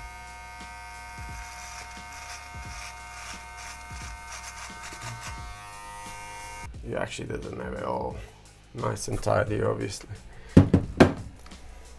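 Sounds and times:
beard trimmer buzzing: 0.0 - 6.7.

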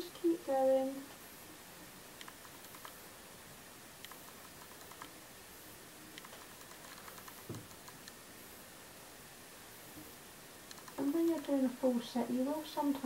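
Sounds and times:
soft thump: 7.5 - 7.7.

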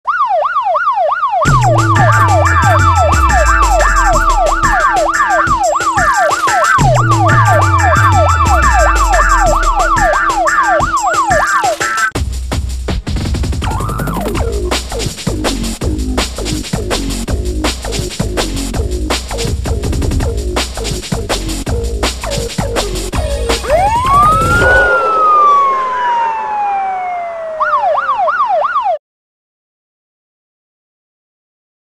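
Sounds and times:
siren sweeping up and down: 0.0 - 12.1, 13.6 - 14.6, 21.5 - 29.0
electronic track with drum beat: 1.4 - 26.2.

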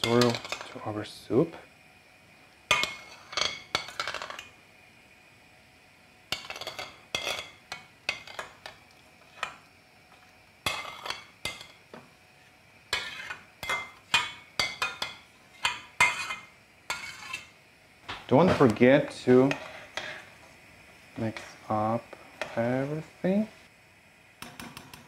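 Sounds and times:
metal spoon scraping frying pan: 0.0 - 0.8, 2.7 - 4.5, 6.3 - 9.6, 10.6 - 11.8, 12.9 - 17.6, 19.0 - 20.4, 22.4 - 22.8.

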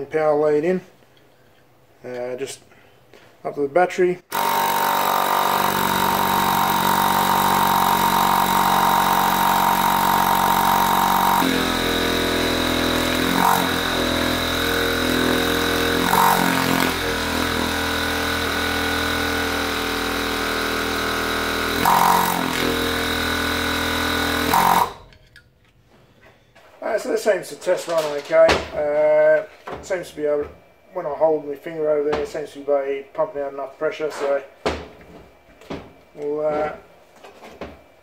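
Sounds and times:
electric compressor running: 4.3 - 25.3.

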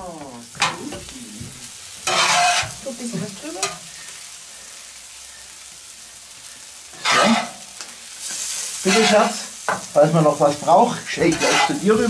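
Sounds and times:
food sizzling in a pan: 0.0 - 12.0
metal spatula scraping: 2.0 - 2.9, 7.0 - 9.8, 11.1 - 12.0.

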